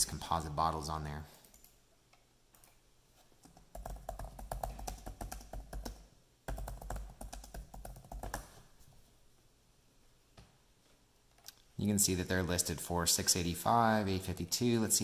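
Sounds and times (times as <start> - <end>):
laptop keyboard typing: 3.4 - 8.6.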